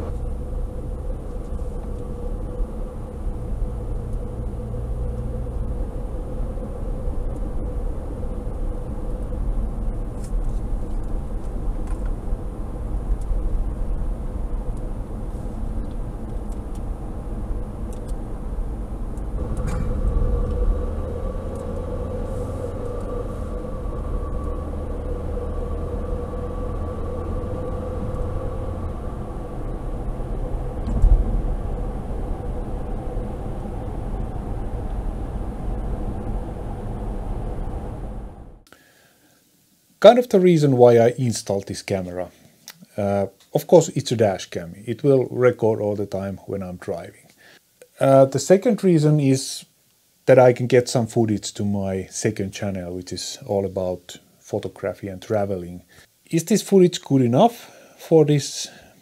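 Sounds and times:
car engine hum: 0.0 - 38.7.

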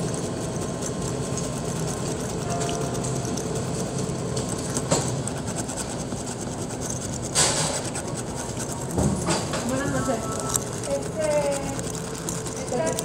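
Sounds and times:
key scraping lottery ticket: 0.0 - 13.0.

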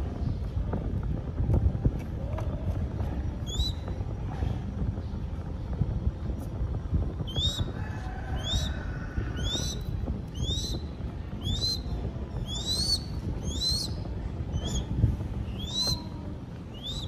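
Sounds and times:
low rumble: 0.0 - 17.0
bird chick squealing: 8.4 - 9.8, 10.4 - 10.8, 11.4 - 14.0.

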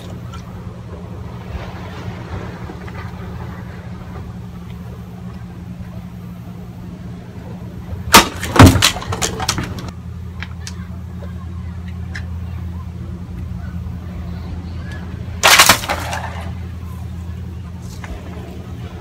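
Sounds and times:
low rumble: 0.0 - 19.0
sword slicing plastic bottle: 15.4 - 16.1.

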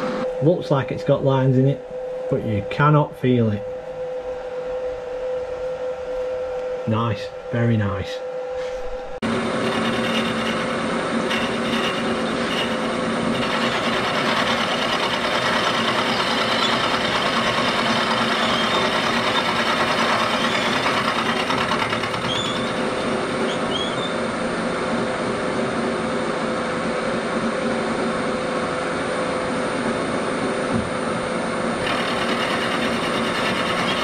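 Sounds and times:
spindle humming: 0.0 - 24.7
milling machine cutting metal: 9.2 - 24.1, 31.8 - 34.0.

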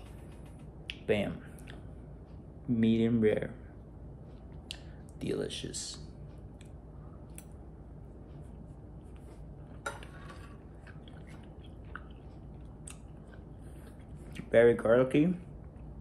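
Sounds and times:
man chewing: 8.4 - 14.5, 15.5 - 16.0
knife and fork on plate: 9.7 - 11.2.

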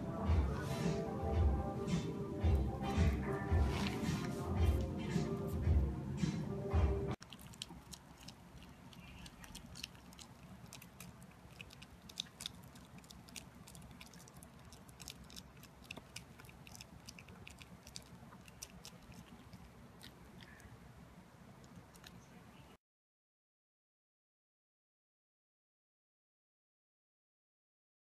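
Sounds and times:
low room hum: 0.0 - 22.8
dog chewing: 7.2 - 20.7, 21.6 - 22.2.

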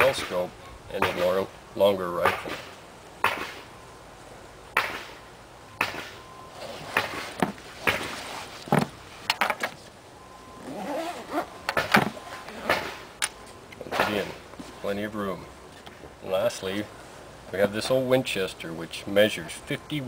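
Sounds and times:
fabric rustling: 6.5 - 10.0, 10.6 - 13.2.

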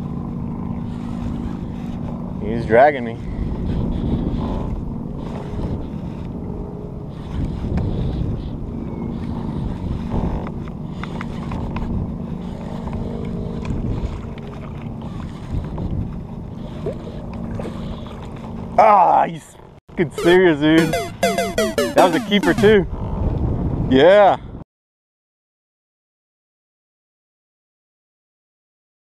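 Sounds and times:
wind on microphone: 3.2 - 10.9
water lapping against hull: 12.1 - 18.8.

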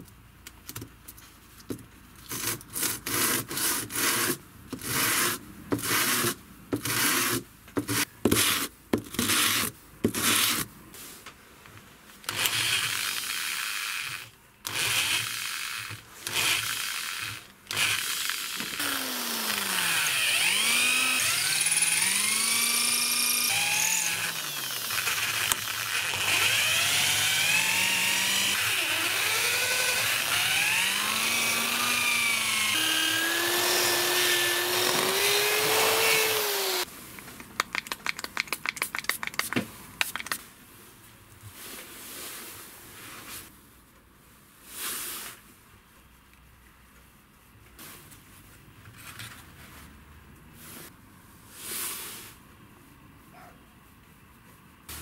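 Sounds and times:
electric drill boring wood: 12.3 - 36.9.

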